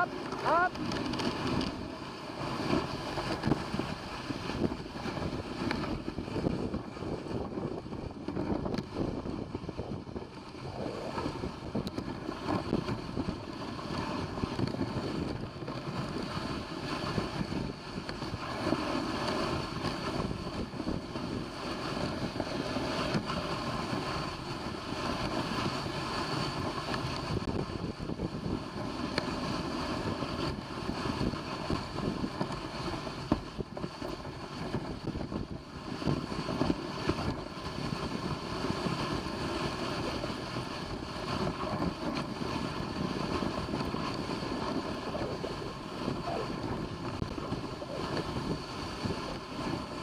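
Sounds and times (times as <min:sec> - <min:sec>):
sled scraping along trail: 0:00.0 - 0:50.0
wind buffeting microphone: 0:00.0 - 0:50.0.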